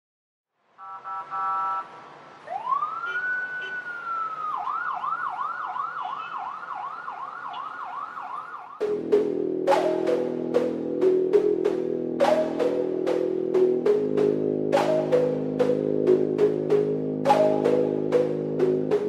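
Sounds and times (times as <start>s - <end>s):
emergency vehicle siren: 0.8s - 19.0s.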